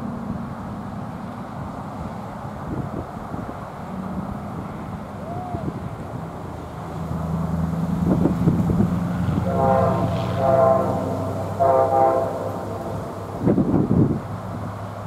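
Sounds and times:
diesel engine running: 0.0 - 15.0
locomotive air horn blasts: 9.1 - 13.8.

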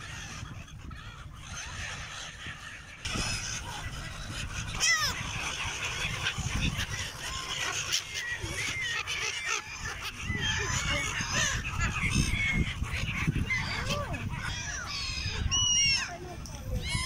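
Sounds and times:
gulls squawking: 0.0 - 17.0.

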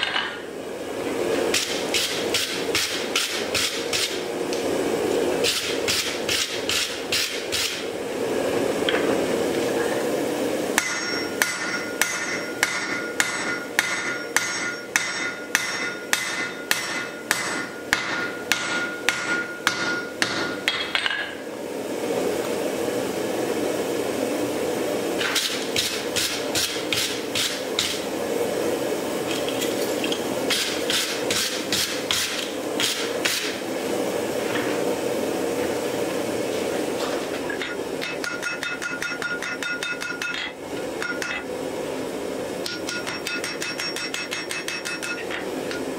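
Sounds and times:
hammer striking steel on anvil: 10.8 - 21.3, 37.6 - 41.4, 42.6 - 45.9.

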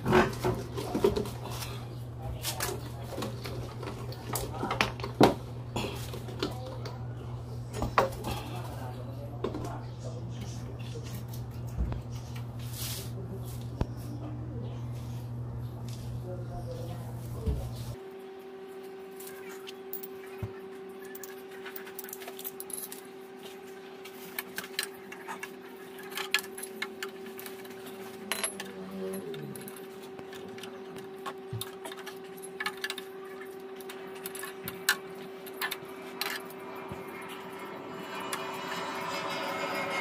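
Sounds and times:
steady hum: 0.0 - 40.0
metal tools clinking: 26.0 - 40.0.

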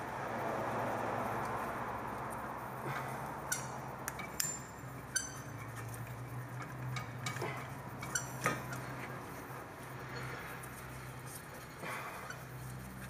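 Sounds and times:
light metallic clinks: 2.8 - 9.2.

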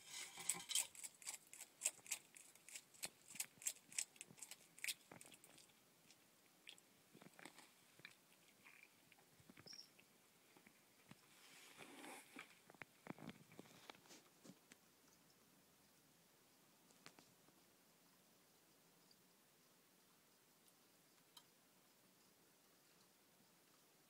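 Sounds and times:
lizard crunching insect: 0.0 - 9.2.

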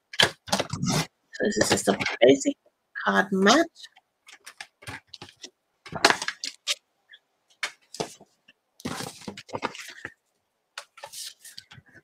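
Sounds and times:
paper rustling: 8.8 - 10.2, 10.8 - 12.0.

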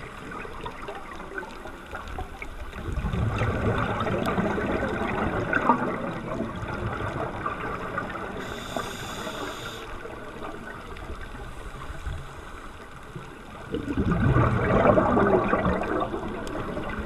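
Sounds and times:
muffled underwater noise: 0.0 - 17.0
brief higher hiss: 8.4 - 9.9.

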